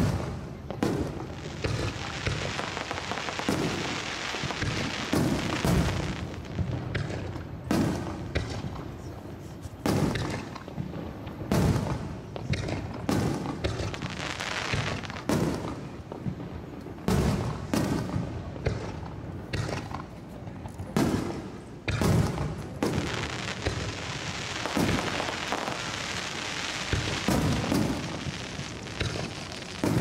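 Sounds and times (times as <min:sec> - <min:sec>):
firework shells booming: 0:00.0 - 0:08.8, 0:09.8 - 0:20.2, 0:20.9 - 0:30.0.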